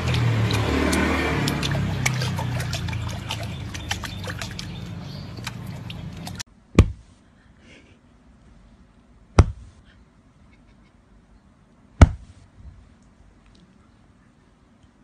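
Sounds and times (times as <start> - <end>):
water splashing and dripping: 0.0 - 6.4
sharp thump: 6.8 - 7.1, 9.4 - 9.8, 12.0 - 12.4.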